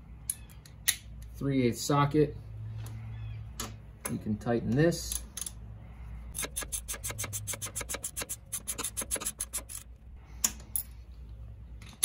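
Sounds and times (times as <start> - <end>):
socket ratchet clicking: 6.4 - 9.9.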